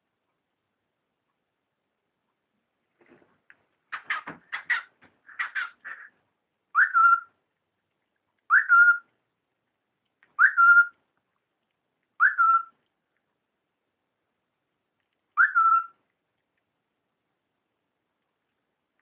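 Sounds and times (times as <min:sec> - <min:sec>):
cockatiel chirps: 0:03.9 - 0:06.1, 0:06.7 - 0:07.3, 0:08.5 - 0:09.1, 0:10.4 - 0:11.0, 0:12.2 - 0:12.8, 0:15.4 - 0:16.0
cockatiel whistling: 0:06.7 - 0:07.3, 0:08.5 - 0:09.1, 0:10.4 - 0:11.0, 0:12.2 - 0:12.8, 0:15.4 - 0:16.0.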